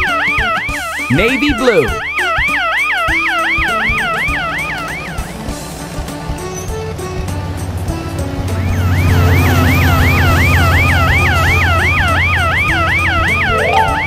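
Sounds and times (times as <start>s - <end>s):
cartoon siren swooping yelp: 13.5s - 14.0s.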